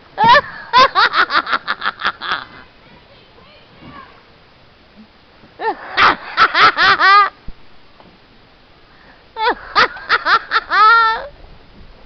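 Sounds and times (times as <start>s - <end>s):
person giggling high-pitched: 5.6s - 7.3s, 9.4s - 11.3s.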